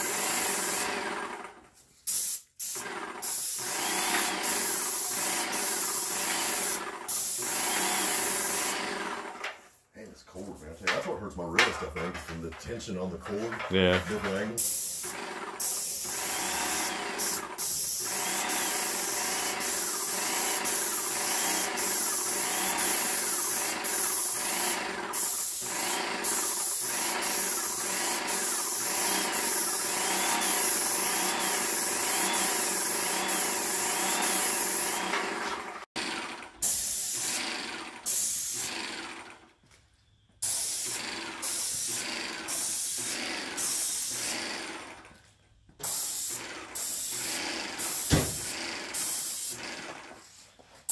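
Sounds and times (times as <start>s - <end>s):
paint spraying hiss: 2.0s - 8.7s, 14.6s - 35.0s, 45.8s - 49.6s
paint sprayer pump humming: 2.1s - 9.5s, 14.6s - 39.2s, 40.5s - 45.2s, 45.8s - 50.5s.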